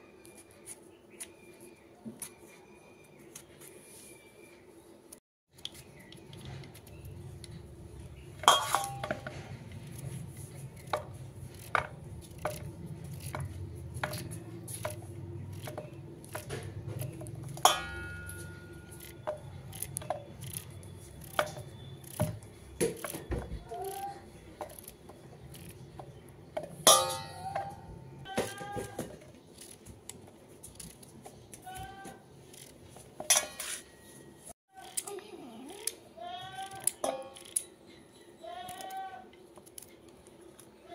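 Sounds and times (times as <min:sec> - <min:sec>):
metallic clinks in steel bowl: 0:08.4 - 0:09.3, 0:17.1 - 0:20.3, 0:26.8 - 0:27.8.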